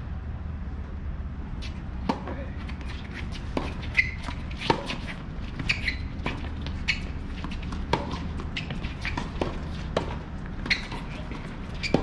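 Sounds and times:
tennis balls struck and bouncing: 2.0 - 12.0
shoe squeaks: 2.6 - 12.0.

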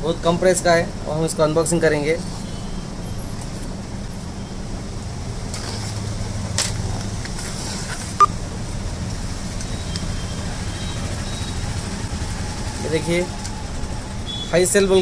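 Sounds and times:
steady low hum: 8.1 - 15.0.

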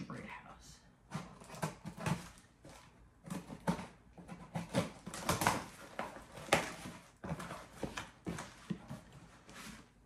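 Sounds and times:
cardboard scraping and tearing: 1.2 - 10.0.

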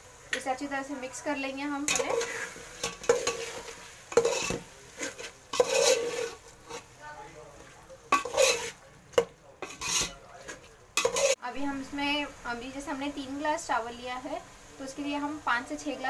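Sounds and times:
food sizzling in a pot: 0.0 - 16.0
metal spoon scraping a metal pot: 1.8 - 6.9, 8.1 - 11.4.

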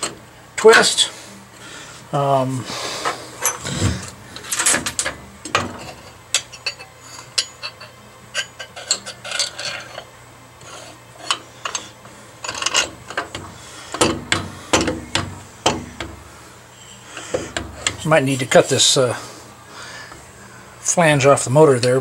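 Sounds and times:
metal clinks and scrapes: 3.4 - 14.9.

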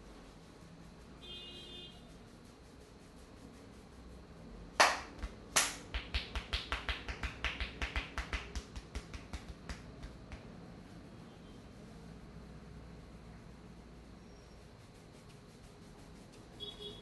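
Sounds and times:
rapid tapping strikes on head: 4.8 - 10.5
hands smacking a head: 4.8 - 10.6.

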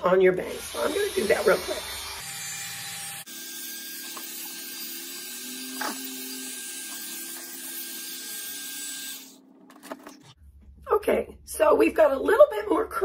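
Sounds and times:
hot air brush fan whirring: 0.4 - 10.3.

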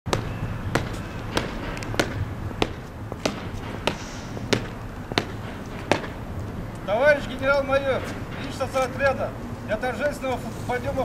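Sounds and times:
boot heels marching on concrete: 0.1 - 8.4.

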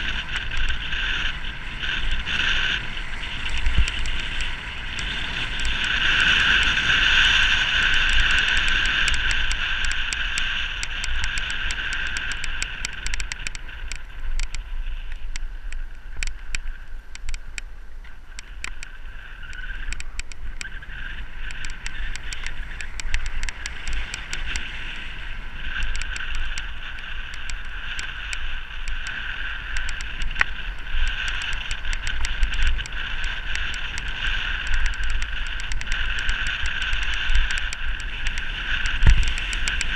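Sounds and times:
bike road noise: 0.0 - 39.9
wind rushing on microphone: 0.0 - 39.9
small rattling clicks: 7.8 - 20.8, 21.4 - 24.8, 25.7 - 39.9.

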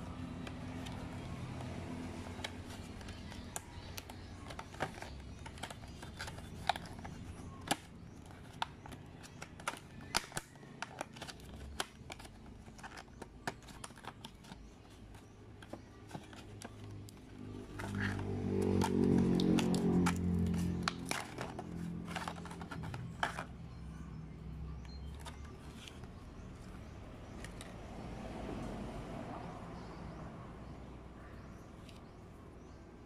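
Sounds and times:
plastic packaging crackling: 0.3 - 23.6.

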